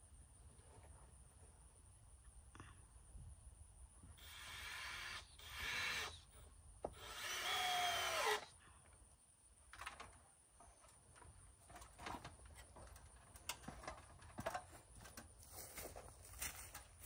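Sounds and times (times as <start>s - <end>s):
power drill driving screws: 4.2s - 6.3s, 6.9s - 8.5s.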